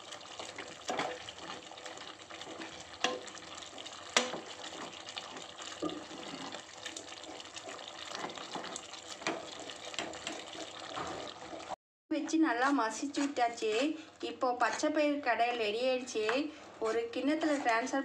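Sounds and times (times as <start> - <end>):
wet stirring and sloshing: 0.0 - 11.8, 12.8 - 18.0
wooden masher knocking on pot: 4.1 - 4.6.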